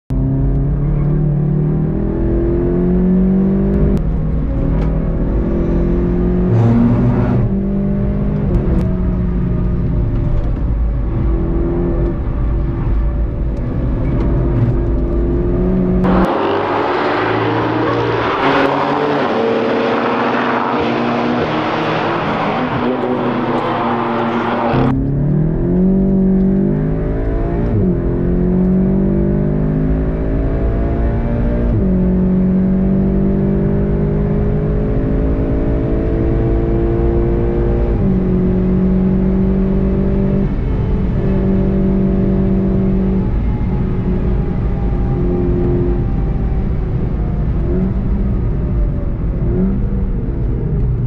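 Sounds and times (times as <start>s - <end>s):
wind and tyre noise: 0.1s - 51.0s
car engine revving hard: 5.1s - 8.8s, 14.4s - 43.8s
sports cars passing at speed: 14.0s - 43.5s.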